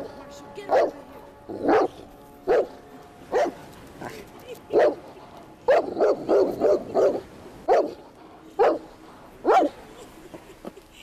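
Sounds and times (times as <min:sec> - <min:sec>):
dog barking: 0:00.7 - 0:01.0, 0:01.6 - 0:03.6, 0:04.7 - 0:05.0, 0:05.7 - 0:08.0, 0:08.6 - 0:09.8.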